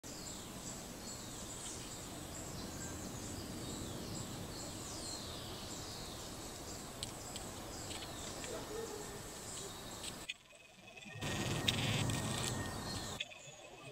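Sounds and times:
background hiss: 0.0 - 13.9
faint insect-like hum: 0.1 - 13.9
birds calling: 11.1 - 13.9.

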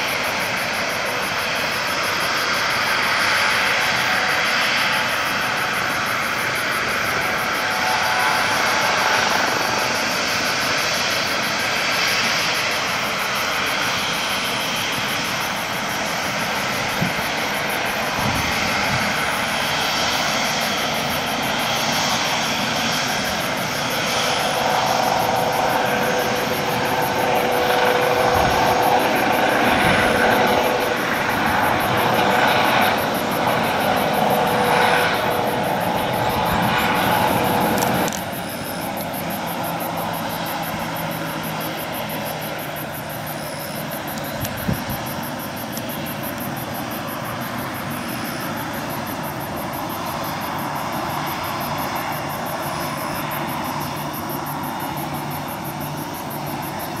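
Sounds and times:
jet engines drone: 0.0 - 57.0.

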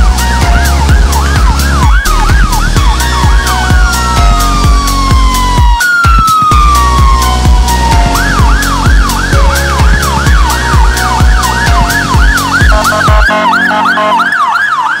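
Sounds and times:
drum and bass music: 0.0 - 15.0
fire engine sirens yelping: 0.0 - 15.0.

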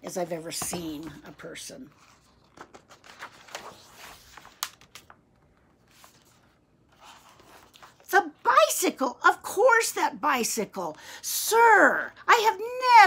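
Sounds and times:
book pages rustling and turning: 0.2 - 8.1.

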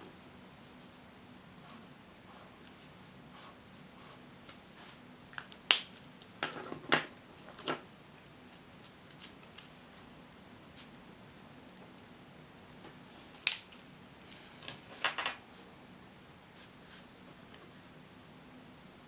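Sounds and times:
highlighter strokes on paper: 0.6 - 5.0, 16.5 - 17.9.

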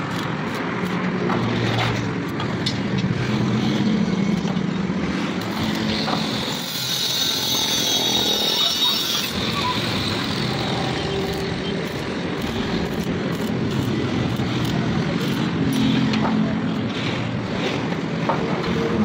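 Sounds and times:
stick welder crackling: 5.3 - 18.1.

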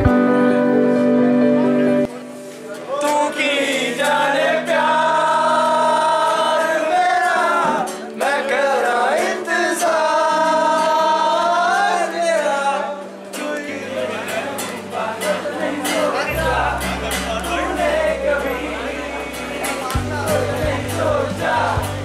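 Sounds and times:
guitar: 0.0 - 22.0.

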